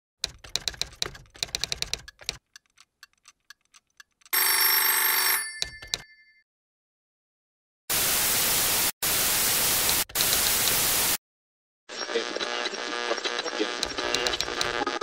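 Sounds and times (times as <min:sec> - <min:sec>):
typewriter key clacks: 0:00.2 - 0:04.3
old telephone bell ringing: 0:04.3 - 0:06.4
clicks: 0:13.8 - 0:14.8.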